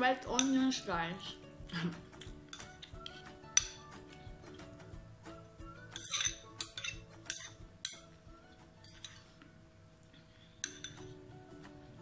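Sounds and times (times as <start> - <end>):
faint background music: 0.0 - 12.0
spoon clinking in ceramic bowl: 5.9 - 8.1, 8.8 - 9.2, 10.6 - 11.1.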